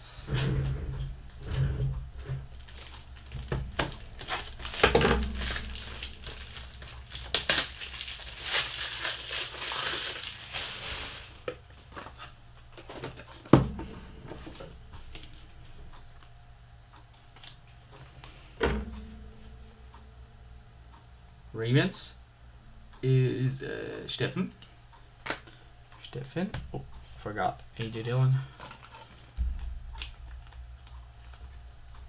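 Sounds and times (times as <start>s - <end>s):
plastic wrapper crinkling: 2.5s - 12.1s, 28.5s - 31.6s.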